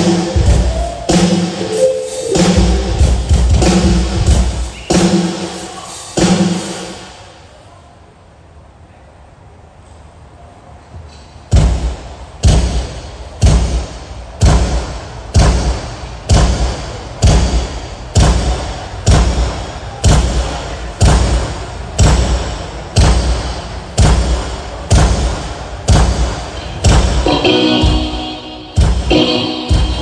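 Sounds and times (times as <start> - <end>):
kick drum hits: 28.8 - 30.0.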